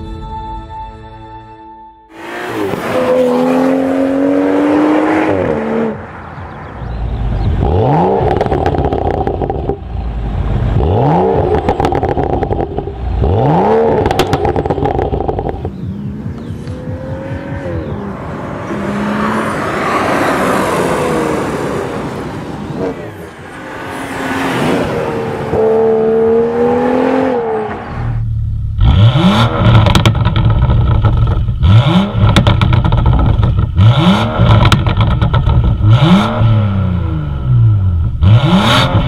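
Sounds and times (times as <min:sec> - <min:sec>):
car engine revving: 0:02.1 - 0:39.0
exhaust crackles and pops: 0:07.2 - 0:10.6, 0:11.4 - 0:17.9, 0:29.4 - 0:33.8, 0:34.4 - 0:36.0.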